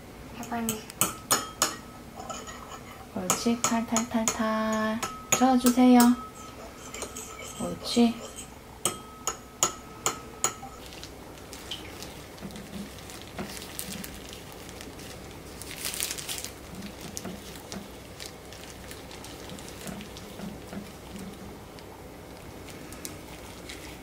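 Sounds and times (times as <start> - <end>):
fork clinking against ceramic bowl: 5.0 - 10.8.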